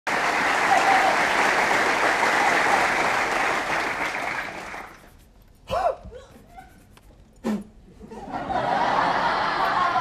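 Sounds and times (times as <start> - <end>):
audience applauding: 0.1 - 5.0.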